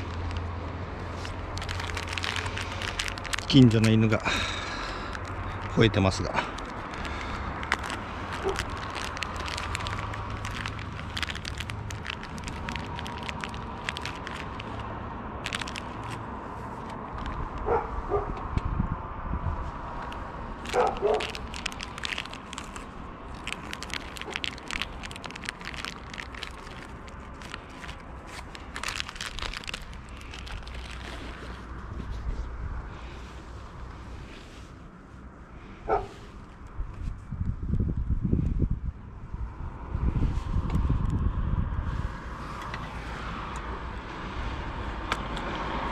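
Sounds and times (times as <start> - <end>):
clicking and crackling: 0.0 - 0.5, 1.2 - 4.0, 6.4 - 16.2, 20.0 - 31.6
dog barking: 17.7 - 18.4, 35.9 - 36.2.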